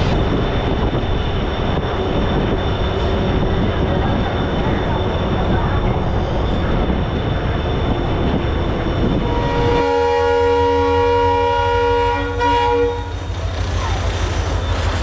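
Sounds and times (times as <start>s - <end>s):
train rolling rumble: 0.0s - 15.0s
train horn blast: 9.1s - 13.2s.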